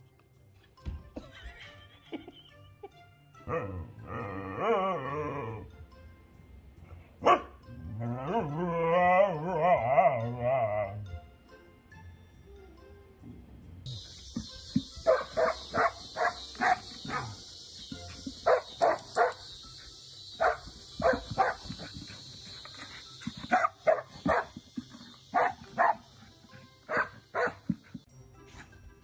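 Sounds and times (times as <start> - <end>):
dog barking: 7.2 - 7.5, 15.0 - 17.4, 18.4 - 19.4, 20.4 - 21.7, 23.5 - 24.5, 25.3 - 26.1, 26.9 - 27.6.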